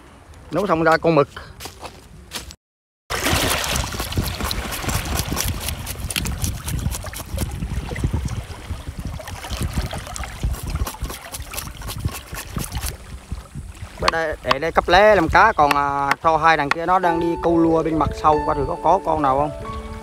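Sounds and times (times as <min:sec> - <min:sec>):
sea water splashing: 0:03.1 - 0:17.1
wind buffeting microphone: 0:03.3 - 0:20.0.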